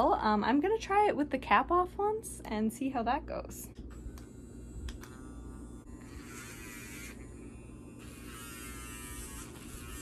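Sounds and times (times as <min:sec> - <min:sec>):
low steady hum: 0:00.0 - 0:10.0
nail grinder whirring: 0:03.9 - 0:10.0.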